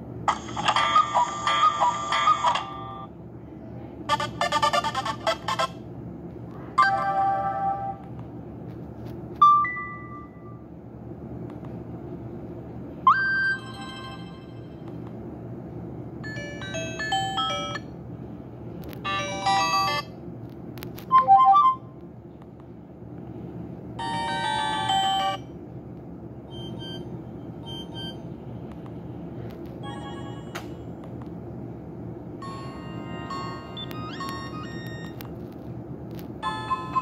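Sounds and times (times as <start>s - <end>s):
phone ringtone melodies: 16.3s - 17.8s, 19.1s - 20.1s, 24.0s - 25.4s, 32.4s - 35.2s, 36.4s - 37.0s.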